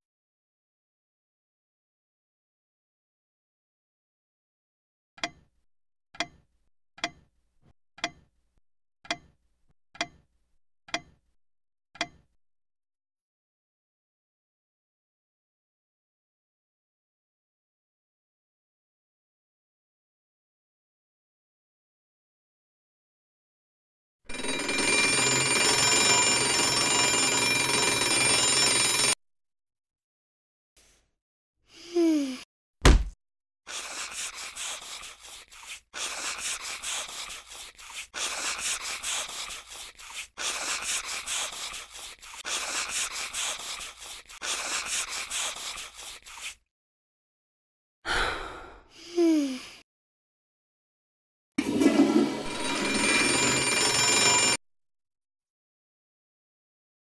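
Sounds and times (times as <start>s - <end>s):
clock ticking: 6.2s - 6.4s, 7.0s - 7.3s, 8.0s - 8.3s, 9.1s - 9.4s, 10.0s - 10.2s, 10.9s - 11.2s
alarm clock bell ringing: 24.3s - 29.2s, 52.3s - 54.6s.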